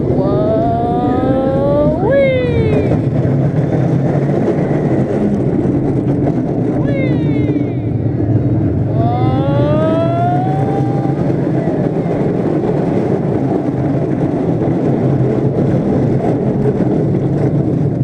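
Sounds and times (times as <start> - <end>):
high-pitched rising tone: 0.0 - 3.1, 6.8 - 12.2
roller coaster rumbling on track: 0.0 - 18.0.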